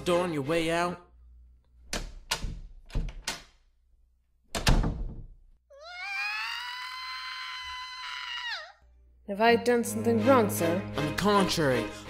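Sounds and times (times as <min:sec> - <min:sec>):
door banging thumps: 0:01.9 - 0:03.5, 0:04.5 - 0:05.5
high vocal squeal: 0:05.8 - 0:08.8.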